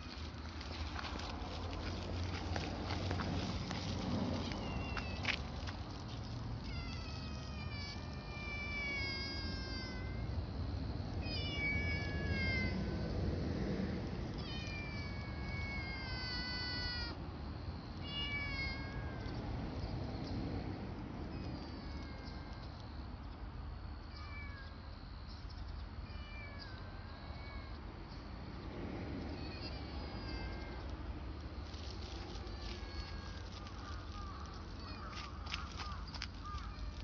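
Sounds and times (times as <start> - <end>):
kitten meowing: 6.6 - 10.2, 11.3 - 12.8, 18.0 - 19.3.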